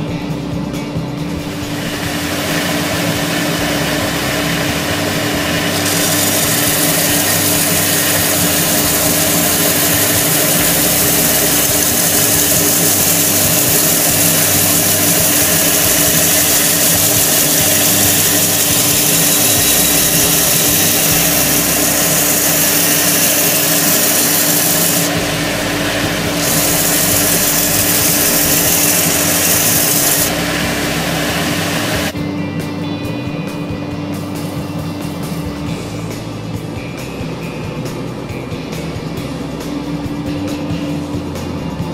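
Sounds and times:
belt sander motor hum: 0:01.4 - 0:32.2
sanding belt hissing on wood: 0:01.6 - 0:32.2.

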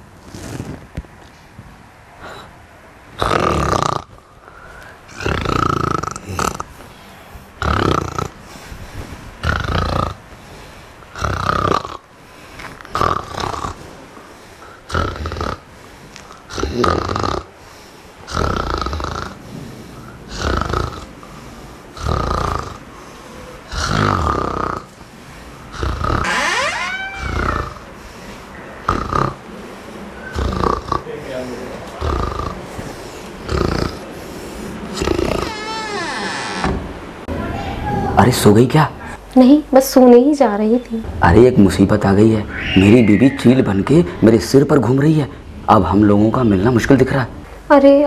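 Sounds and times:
person snoring: 0:05.1 - 0:06.7, 0:18.3 - 0:19.4, 0:20.3 - 0:21.1, 0:22.0 - 0:22.8, 0:25.7 - 0:26.3, 0:27.2 - 0:27.9.

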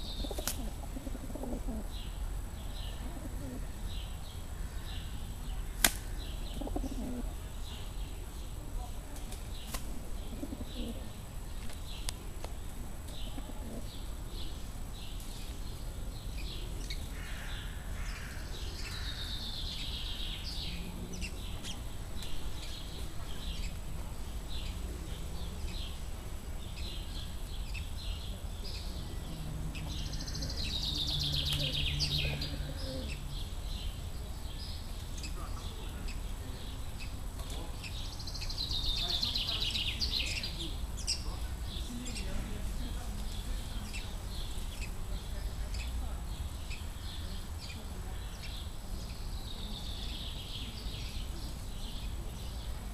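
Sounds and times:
pigeon cooing: 0:00.0 - 0:02.0, 0:03.0 - 0:03.7, 0:06.6 - 0:07.4, 0:10.0 - 0:11.1, 0:13.4 - 0:13.9, 0:31.6 - 0:33.2
falling birdsong phrase: 0:00.0 - 0:52.9
small songbirds chirping: 0:00.0 - 0:52.9.

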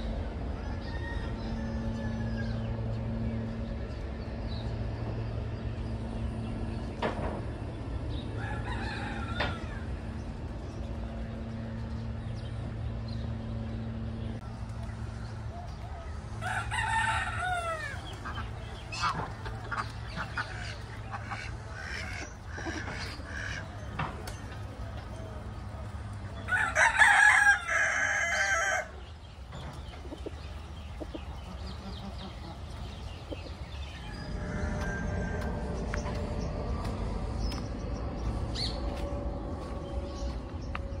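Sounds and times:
rooster crowing: 0:00.5 - 0:02.8, 0:08.4 - 0:10.0, 0:15.9 - 0:18.2, 0:26.4 - 0:29.1, 0:33.8 - 0:36.1.

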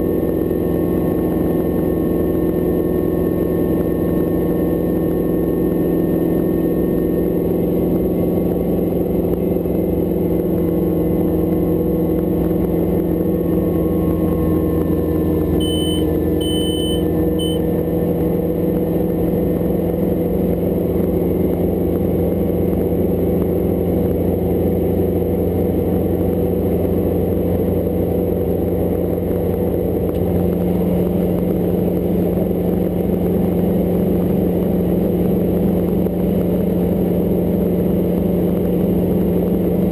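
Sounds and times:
helicopter engine and rotor drone: 0:00.0 - 0:39.9
short high beeps: 0:15.6 - 0:17.6.

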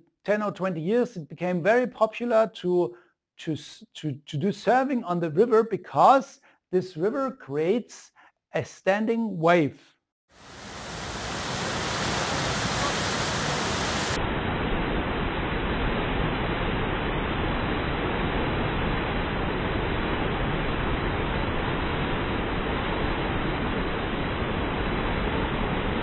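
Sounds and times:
river whitewater rushing: 0:10.4 - 0:14.2.

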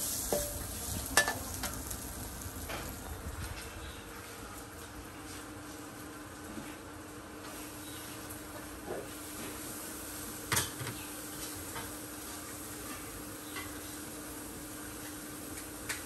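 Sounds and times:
utensil clanking against wok: 0:00.0 - 0:02.0, 0:10.5 - 0:12.0
food sizzling in a wok: 0:00.0 - 0:03.4, 0:07.3 - 0:16.0.

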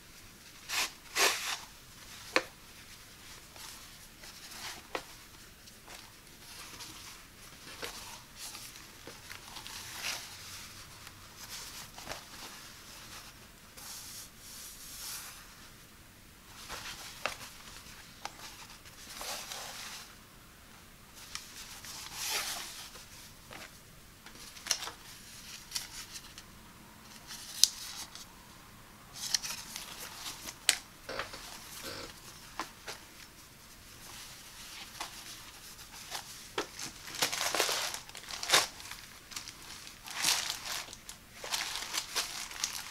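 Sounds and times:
fabric swishing and rustling: 0:31.4 - 0:42.9.

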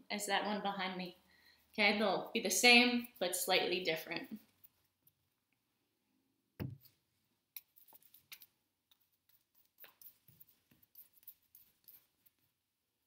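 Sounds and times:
dull thump: 0:06.6 - 0:06.8
paintbrush scratching canvas: 0:07.8 - 0:12.6.

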